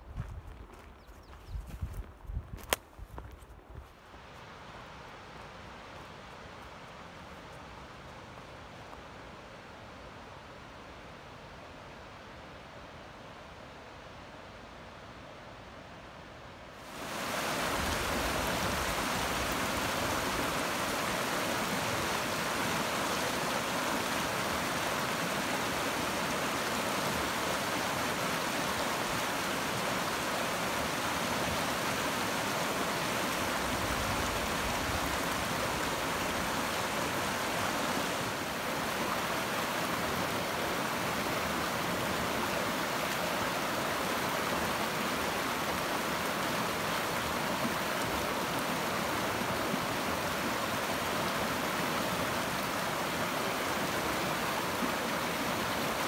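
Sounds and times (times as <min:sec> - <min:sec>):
water rushing: 0:16.8 - 0:56.0.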